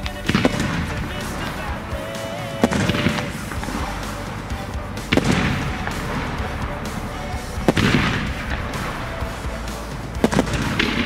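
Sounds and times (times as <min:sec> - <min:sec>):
firework crackling: 0:00.0 - 0:11.0.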